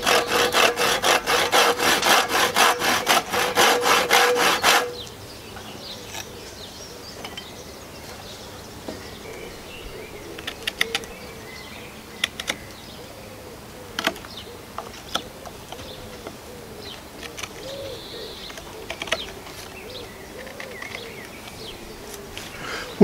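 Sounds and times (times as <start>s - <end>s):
knife carving wood: 0.0s - 5.0s
birds chirping: 0.0s - 23.0s
pigeon cooing: 9.3s - 11.5s, 12.4s - 23.0s.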